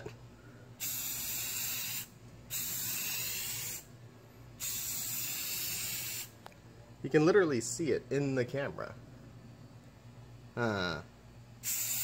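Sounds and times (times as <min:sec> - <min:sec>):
spray paint can hissing: 0:00.8 - 0:03.9, 0:04.6 - 0:06.4, 0:11.6 - 0:12.0.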